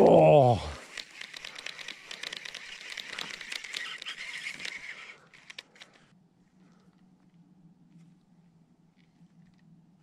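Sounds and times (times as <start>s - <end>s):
fishing reel ticking whir: 0.2s - 6.1s
reel clicks: 0.4s - 6.1s.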